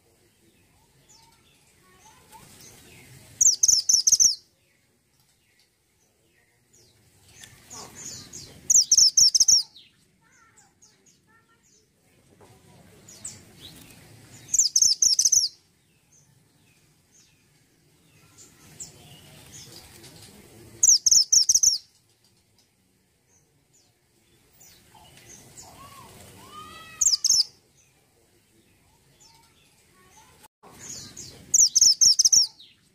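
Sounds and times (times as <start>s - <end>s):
bird calling high-pitched notes: 26.5s - 27.5s.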